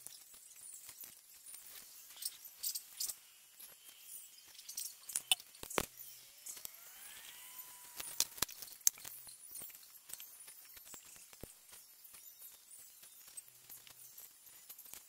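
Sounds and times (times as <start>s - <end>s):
faint rising tone: 6.0s - 8.6s.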